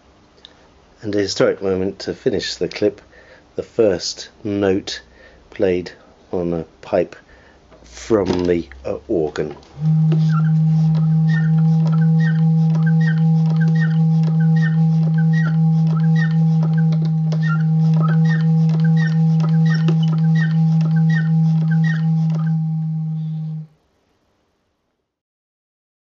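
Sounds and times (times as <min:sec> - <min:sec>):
organ pipe tone: 0:07.8 - 0:23.8.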